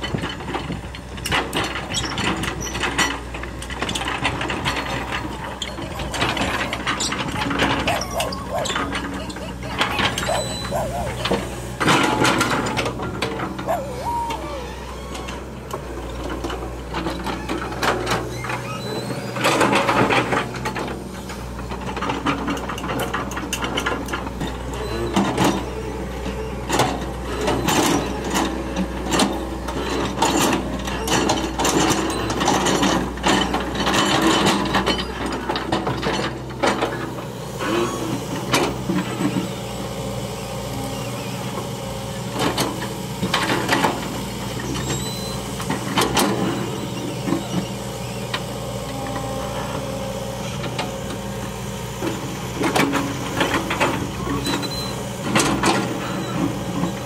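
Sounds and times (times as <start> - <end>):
machine clanks and knocks: 0.0 - 9.2
excavator diesel engine running: 0.0 - 57.0.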